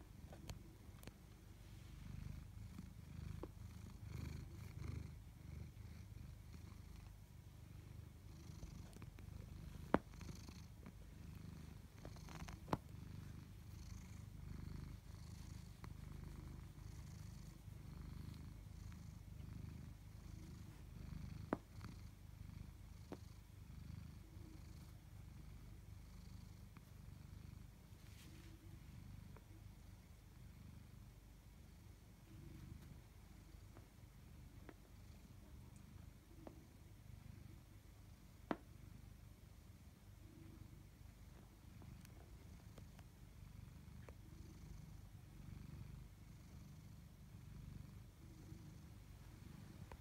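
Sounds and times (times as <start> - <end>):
cat purring: 0.0 - 50.0.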